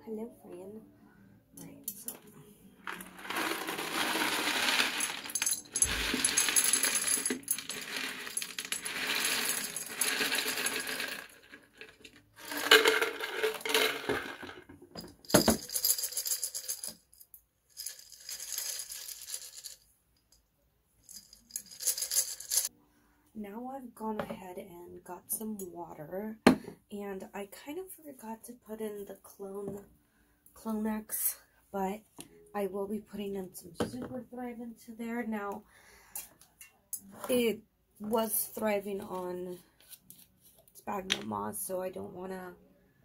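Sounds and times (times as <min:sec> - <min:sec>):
clay pebbles clattering into glass jar: 0:02.9 - 0:17.0, 0:17.7 - 0:19.8, 0:21.1 - 0:22.7.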